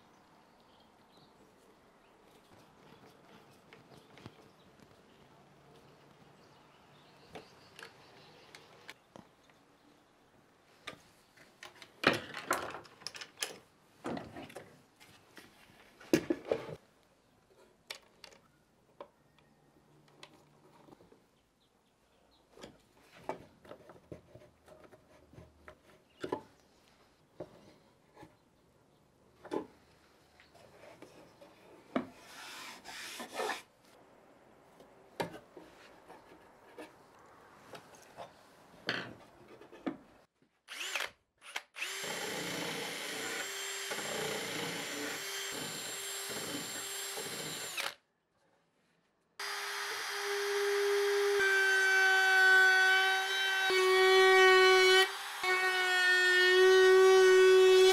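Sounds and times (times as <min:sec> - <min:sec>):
screwdriver driving screws: 0:40.7 - 0:48.0.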